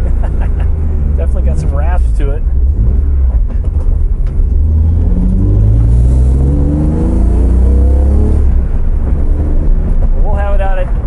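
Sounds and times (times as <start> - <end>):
car engine accelerating hard: 0.0 - 10.5.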